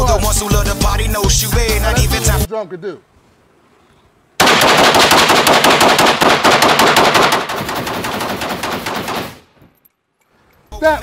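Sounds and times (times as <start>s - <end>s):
rapid gunfire: 4.4s - 9.5s.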